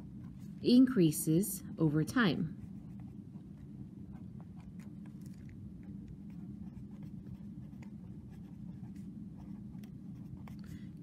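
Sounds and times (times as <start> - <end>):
steady low hum: 0.0 - 11.0
pen scratching on paper: 6.3 - 10.6.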